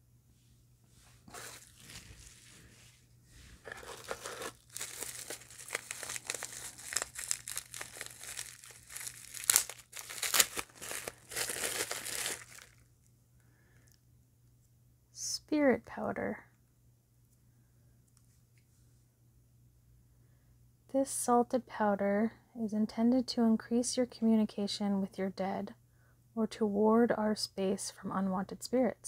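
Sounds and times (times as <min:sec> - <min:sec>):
jar sliding out of bag: 0:01.2 - 0:02.7, 0:03.4 - 0:08.1
bubble wrap crinkling: 0:01.2 - 0:12.9.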